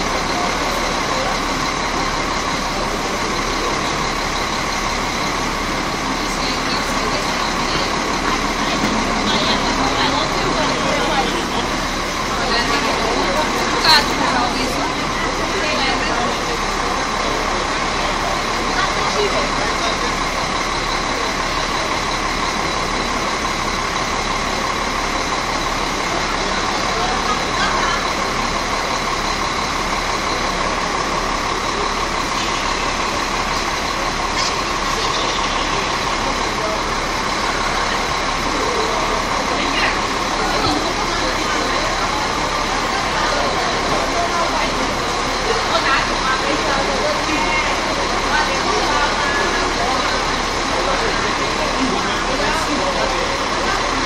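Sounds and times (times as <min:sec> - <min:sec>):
bus engine idling: 0:00.0 - 0:54.0.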